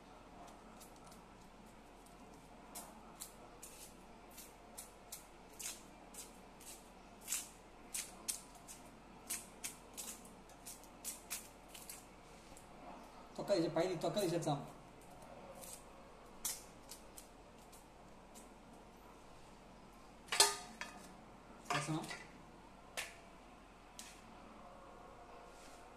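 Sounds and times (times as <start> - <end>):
onion skin crackling: 0.4 - 12.7, 14.1 - 18.9.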